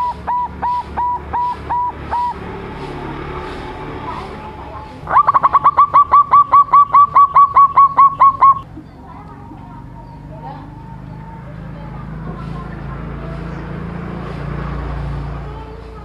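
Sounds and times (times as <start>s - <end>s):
dove cooing: 0.0s - 8.6s.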